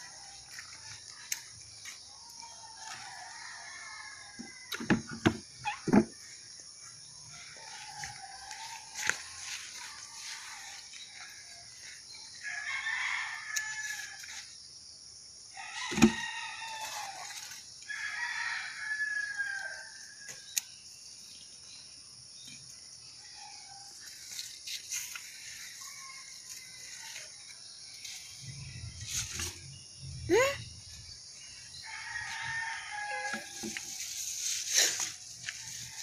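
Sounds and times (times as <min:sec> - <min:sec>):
rooster crowing: 0:02.2 - 0:04.8, 0:07.3 - 0:14.4, 0:15.5 - 0:20.2, 0:31.7 - 0:34.0.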